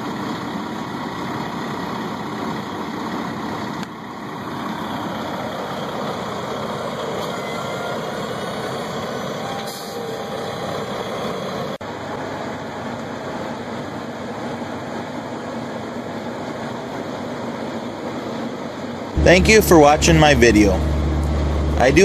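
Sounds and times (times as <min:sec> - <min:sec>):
diesel truck engine idling: 0:00.0 - 0:22.0.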